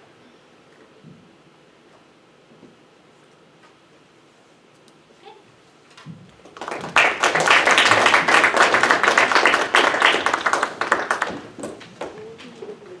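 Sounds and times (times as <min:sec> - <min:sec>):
audience applauding: 0:06.5 - 0:11.9.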